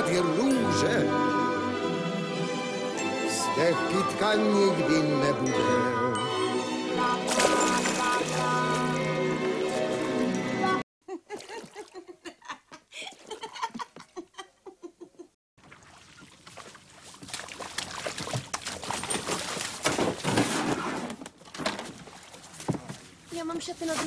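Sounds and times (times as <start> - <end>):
water sloshing around a boat: 7.2 - 10.3, 15.6 - 24.0
laughter: 11.0 - 15.4.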